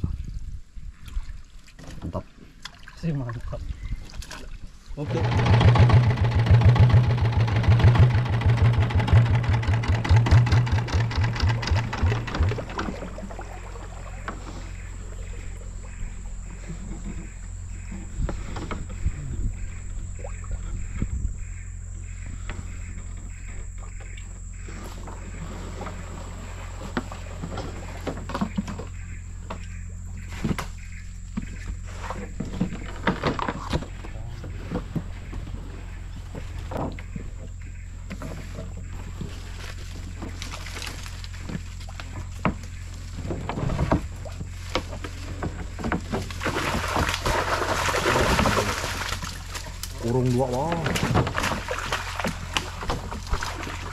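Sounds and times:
small boat engine chugging: 0:05.0 - 0:53.9
steady low hum: 0:05.0 - 0:53.9
knocks and scrapes on wooden boat: 0:24.6 - 0:37.4, 0:41.4 - 0:47.2.

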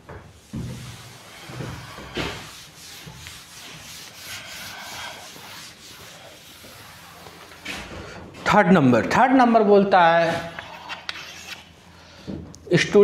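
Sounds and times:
cloth wiping a blackboard: 0:00.1 - 0:07.8.

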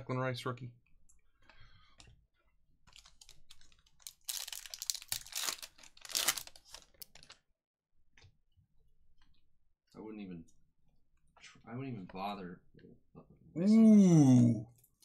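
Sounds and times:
foil wrapper crinkling and tearing: 0:02.9 - 0:07.4.

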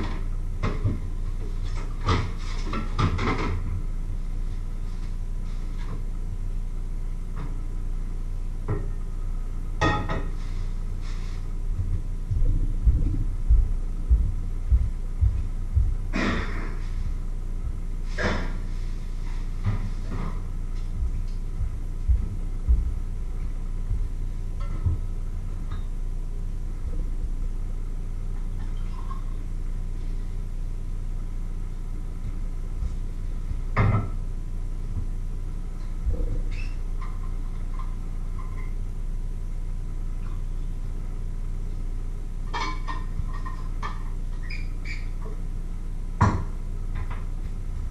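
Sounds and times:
steady low hum: 0:00.0 - 0:47.9
soft low thumps: 0:11.5 - 0:18.6, 0:19.6 - 0:27.6, 0:36.0 - 0:36.5.

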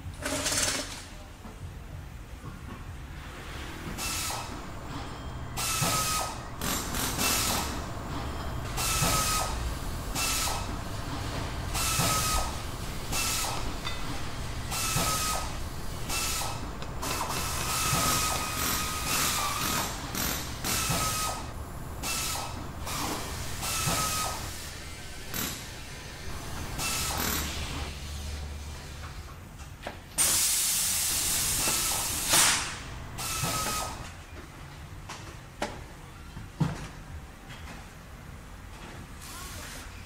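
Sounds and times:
pneumatic air tool hissing: 0:04.0 - 0:04.6, 0:05.6 - 0:07.8, 0:08.7 - 0:10.7, 0:11.7 - 0:14.0, 0:14.7 - 0:26.0, 0:26.7 - 0:28.4, 0:30.2 - 0:34.0.

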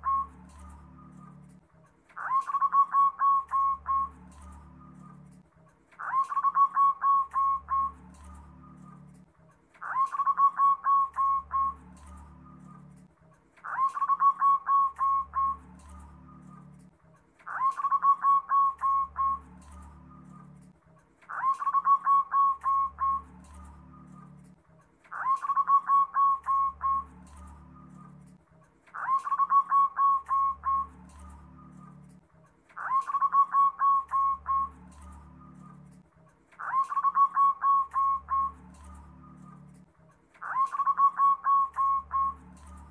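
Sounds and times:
dove cooing: 0:00.0 - 0:01.6, 0:02.2 - 0:05.4, 0:06.0 - 0:20.7, 0:21.3 - 0:32.2, 0:32.8 - 0:36.0, 0:36.6 - 0:39.8, 0:40.4 - 0:42.9.

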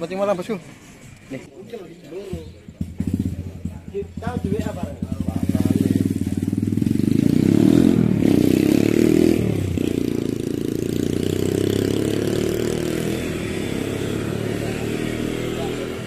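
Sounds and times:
motorcycle engine running: 0:02.2 - 0:16.0.

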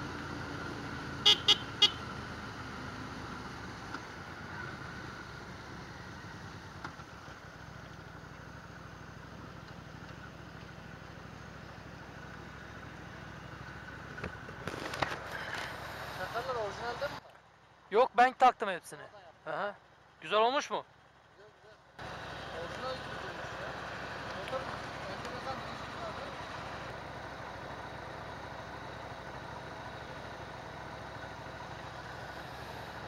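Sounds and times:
motorcycle engine and road noise: 0:00.0 - 0:18.0, 0:20.9 - 0:33.0
motorcycle horn toots: 0:01.2 - 0:02.1.

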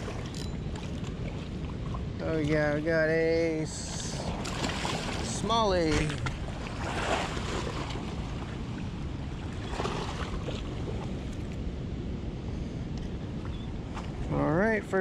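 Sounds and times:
river water rushing: 0:00.0 - 0:11.4.

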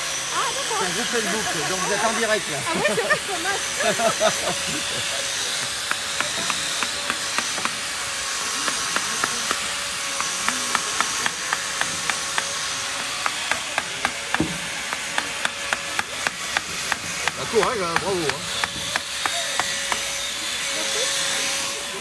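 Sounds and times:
chisel chipping ice: 0:04.0 - 0:20.6.

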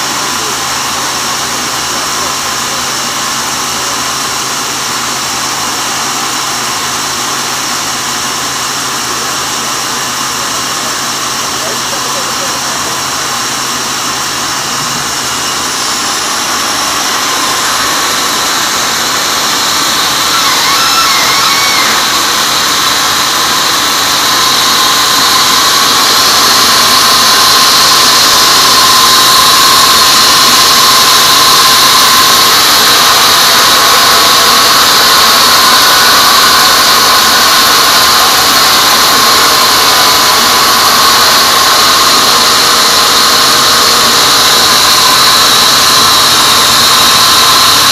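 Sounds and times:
band saw cutting log: 0:00.0 - 0:47.9.

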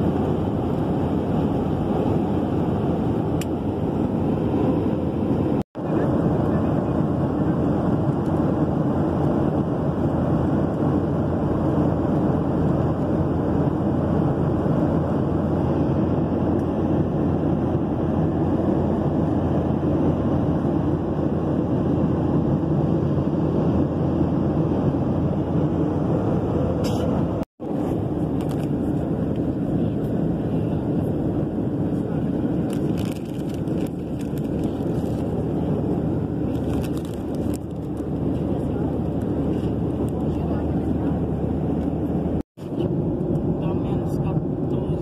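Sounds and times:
airliner cabin noise: 0:00.0 - 0:45.0.

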